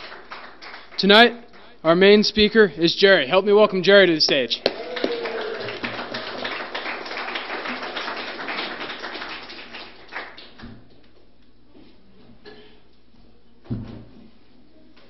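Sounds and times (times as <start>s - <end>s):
audience applauding: 0.0s - 1.0s, 4.6s - 10.6s.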